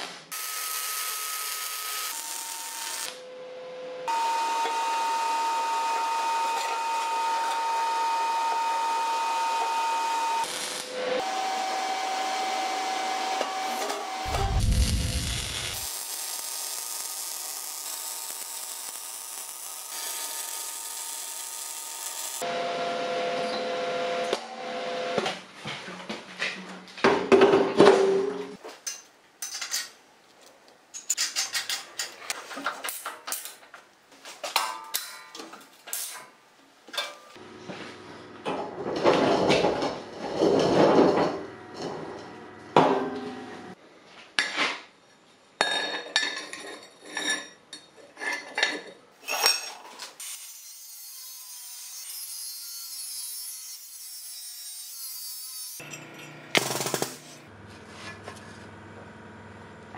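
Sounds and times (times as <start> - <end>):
welding crackling: 0.4 - 3.2, 10.4 - 11.0, 14.2 - 22.4.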